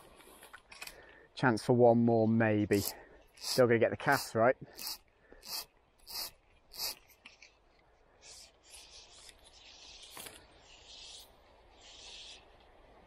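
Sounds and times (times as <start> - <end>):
fishing line rubbing and rustling: 2.7 - 12.4.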